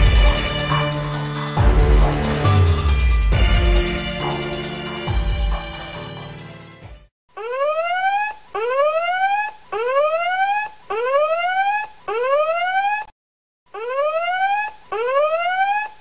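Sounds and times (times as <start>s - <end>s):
background music: 0.0s - 7.1s
whooping alarm tone: 7.4s - 13.1s, 13.8s - 16.0s.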